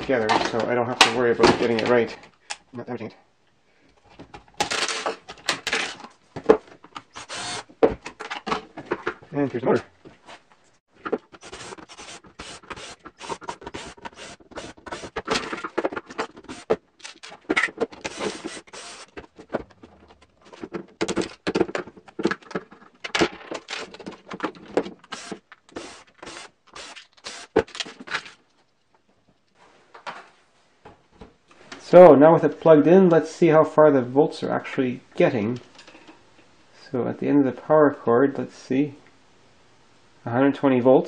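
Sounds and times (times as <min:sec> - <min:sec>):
plastic parts clattering: 0:04.0 - 0:09.3, 0:11.0 - 0:28.6.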